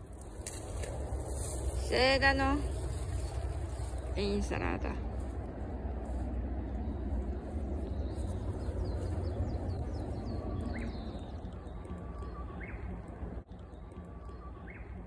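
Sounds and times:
bush warbler singing: 0.0s - 5.6s, 6.2s - 15.0s
low background rumble: 0.0s - 15.0s
faint high bird chirps: 7.8s - 15.0s.

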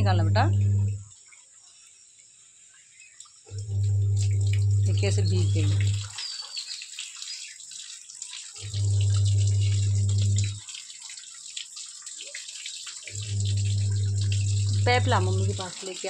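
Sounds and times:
low steady hum: 0.0s - 1.2s, 3.5s - 6.2s, 8.6s - 10.6s, 13.1s - 15.7s
rain on concrete: 3.1s - 16.0s.

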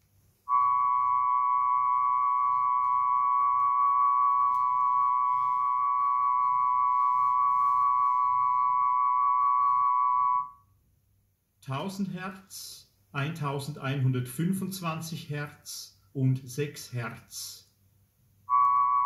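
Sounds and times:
steady test tones: 0.5s - 10.5s.

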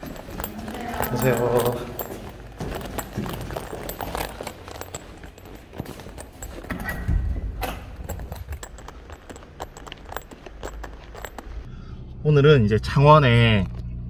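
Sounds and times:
footsteps on concrete stairs: 0.0s - 11.7s
footsteps on smooth floor: 0.0s - 11.7s.

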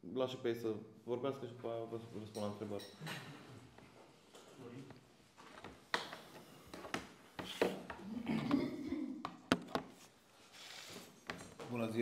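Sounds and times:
clicks and knocks on wooden table: 9.2s - 10.0s.

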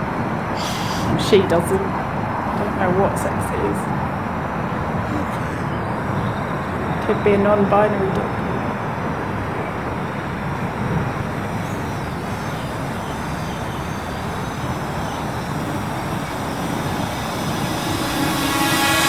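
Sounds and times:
drone propellers humming: 0.0s - 19.0s
steady rushing noise: 0.0s - 19.0s.

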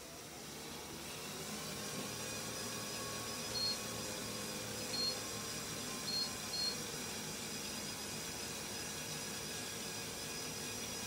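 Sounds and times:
small toy motors humming: 0.0s - 11.0s
treadmill belt whirring: 0.0s - 11.0s
short high electronic beeps: 3.6s - 3.8s, 6.1s - 6.8s.

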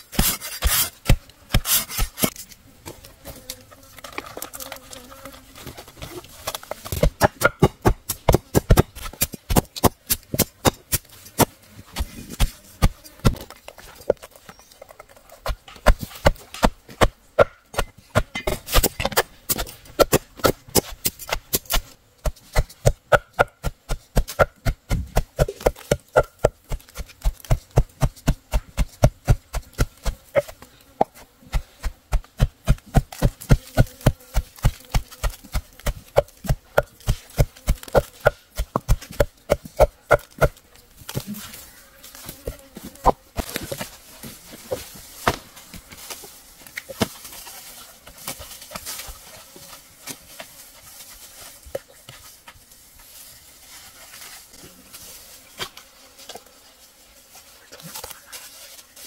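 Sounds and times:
fast regular chopping strokes: 0.0s - 2.5s, 6.1s - 14.2s, 15.2s - 41.6s.

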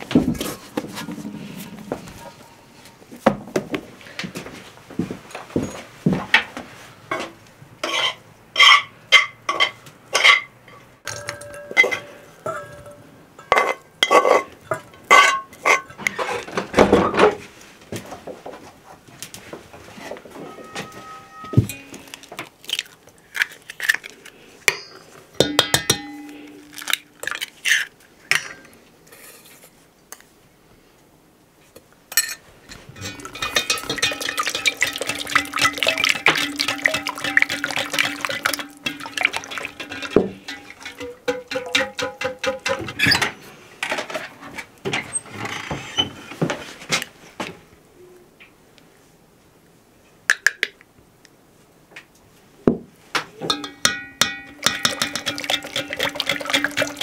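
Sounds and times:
eggs cracking: 21.9s - 24.4s, 26.5s - 27.9s, 33.0s - 42.8s, 53.6s - 57.0s
whisk beating in enamel pot: 33.0s - 43.0s, 53.5s - 57.0s.

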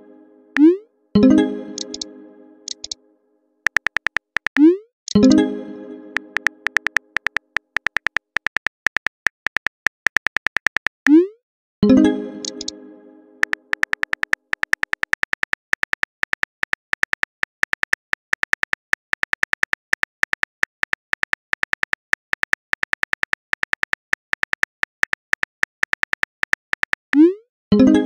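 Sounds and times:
phone keyboard clicks: 1.8s - 2.1s, 2.7s - 3.0s, 3.7s - 4.7s, 6.4s - 11.0s, 12.4s - 12.7s, 13.4s - 27.1s.

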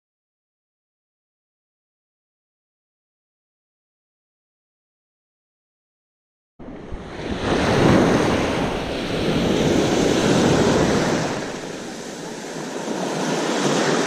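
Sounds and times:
surf washing over rocks: 6.6s - 14.0s
wind buffeting microphone: 6.6s - 14.0s.

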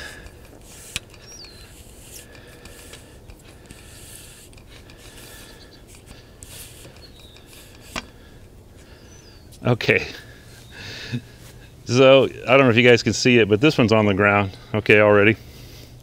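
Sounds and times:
metal sections scraping: 0.0s - 10.6s.

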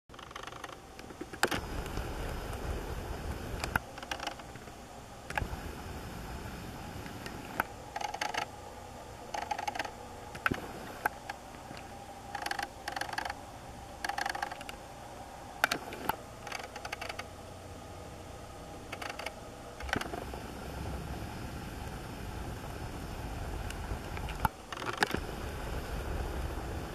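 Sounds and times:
mechanical rattling: 7.4s - 8.5s, 9.3s - 11.4s, 12.3s - 13.4s, 14.0s - 14.8s, 15.6s - 17.3s, 24.3s - 25.3s.

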